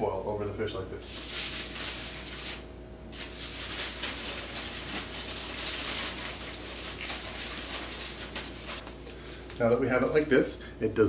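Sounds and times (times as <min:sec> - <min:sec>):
aluminium foil crinkling: 0:01.0 - 0:09.0.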